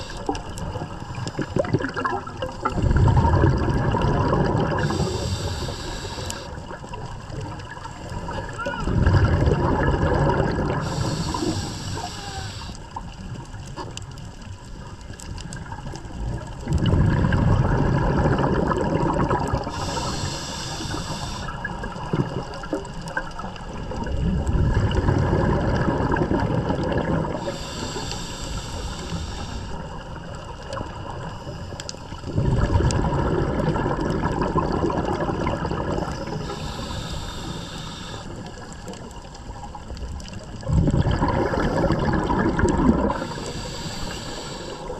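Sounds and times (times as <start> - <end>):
regulator inhale hiss: 0.0 - 0.5, 4.7 - 6.7, 10.8 - 13.0, 19.6 - 21.8, 27.3 - 30.4, 36.2 - 38.9, 43.1 - 44.9
exhaled air bubbling: 0.0 - 44.9.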